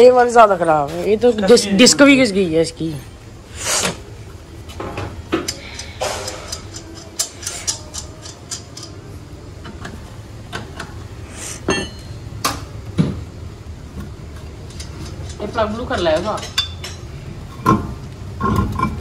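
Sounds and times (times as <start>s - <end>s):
metallic clicks and clinks: 5.5s - 9.1s.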